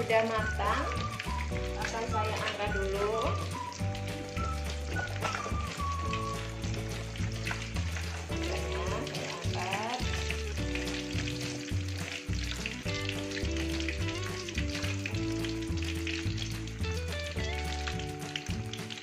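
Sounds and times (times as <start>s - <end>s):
background music with bass: 0.0s - 19.0s
oil sizzling in a wok: 0.0s - 19.0s.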